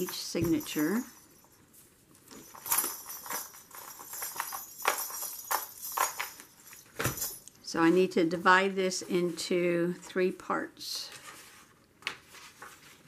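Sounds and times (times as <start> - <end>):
bead and bell charms clicking: 0.0 - 1.6, 2.4 - 7.6
paper rustling and light clicks: 11.1 - 13.0.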